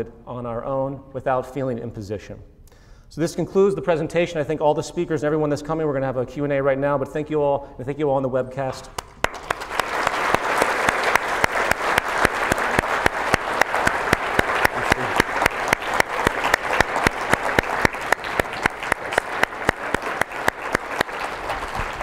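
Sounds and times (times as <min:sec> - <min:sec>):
sharp close single claps: 0:08.9 - 0:10.0
audience applauding: 0:09.0 - 0:22.0.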